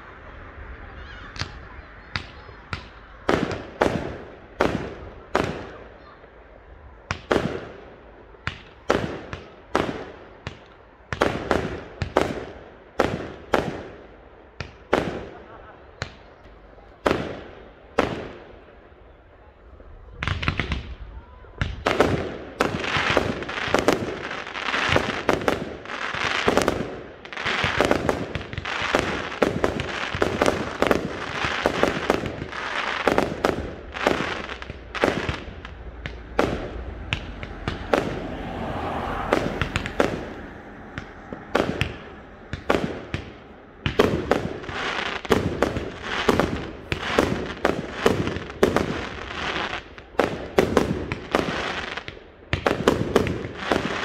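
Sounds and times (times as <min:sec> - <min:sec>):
fireworks bangs and pops: 0:01.3 - 0:06.2, 0:07.0 - 0:18.6, 0:20.1 - 0:54.0.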